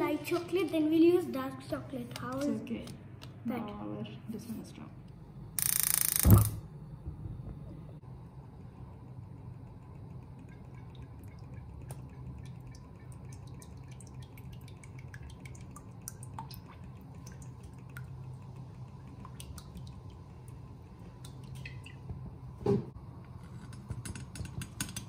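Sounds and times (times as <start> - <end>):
gas burner humming: 5.0 - 13.3
oil dripping plinks: 9.7 - 22.2.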